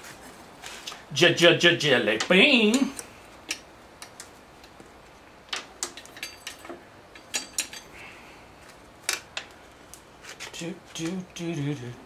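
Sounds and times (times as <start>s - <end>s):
metallic clinks of tools: 5.9s - 7.9s.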